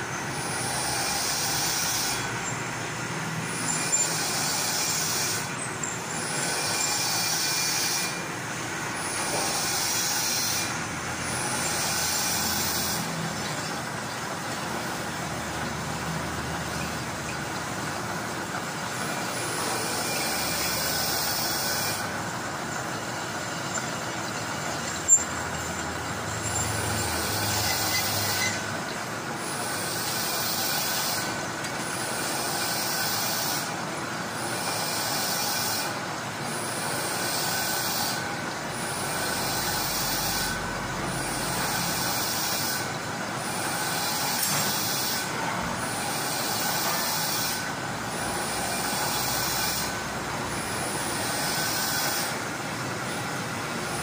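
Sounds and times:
lathe machine hum: 0.0s - 54.0s
hissing cutting noise: 0.8s - 31.4s.

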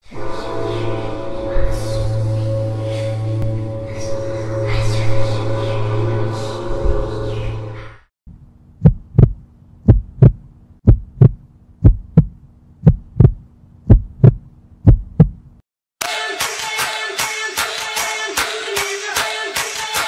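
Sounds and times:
ambient music: 0.0s - 8.1s
low steady hum: 0.7s - 15.6s
heartbeat thumps: 8.8s - 15.6s
music with a beat: 16.0s - 20.0s.

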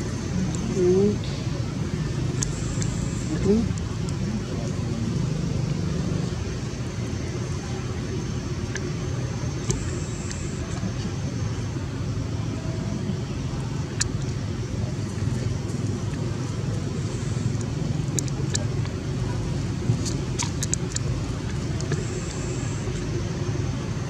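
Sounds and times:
traffic rumble: 0.0s - 24.0s
sharp clicks: 20.0s - 22.4s.

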